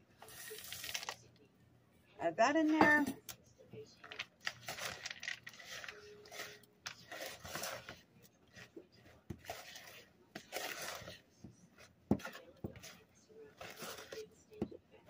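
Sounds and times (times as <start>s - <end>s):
spatula scraping plastic bowl: 5.6s - 14.8s.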